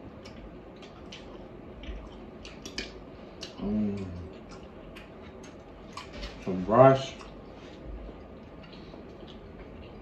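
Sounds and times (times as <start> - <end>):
chewing: 0.0 - 10.0
low vocal hum: 3.4 - 4.6.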